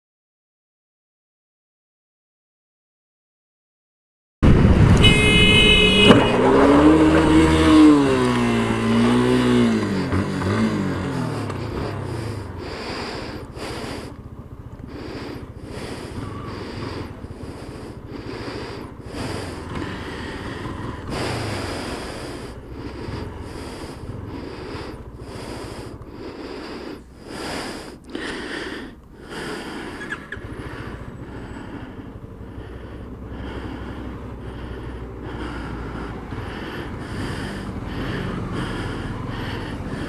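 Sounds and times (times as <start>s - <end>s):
motorcycle engine running: 4.4s - 40.0s
breathing on microphone: 8.0s - 40.0s.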